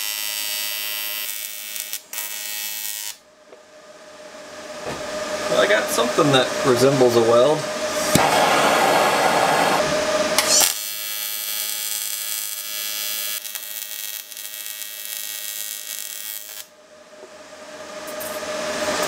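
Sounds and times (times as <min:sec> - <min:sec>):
welding arc buzzing: 0:00.0 - 0:03.2, 0:08.0 - 0:16.7
gas torch hissing: 0:07.8 - 0:10.8.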